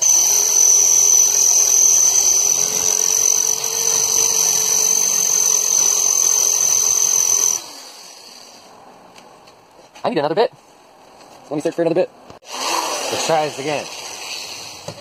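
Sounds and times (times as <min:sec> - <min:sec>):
electric drill whining: 0:00.0 - 0:08.7, 0:12.4 - 0:13.3.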